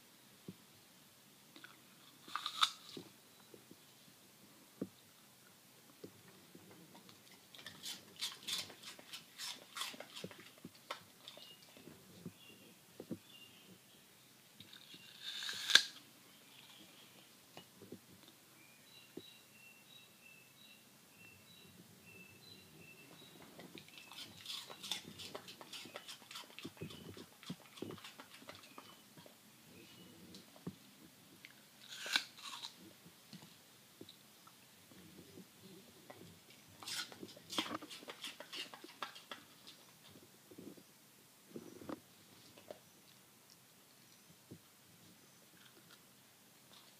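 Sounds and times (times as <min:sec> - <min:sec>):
dog crunching apple: 0:01.6 - 0:03.1, 0:07.0 - 0:11.8, 0:14.6 - 0:16.0, 0:23.2 - 0:29.3, 0:31.5 - 0:32.8, 0:36.1 - 0:39.8.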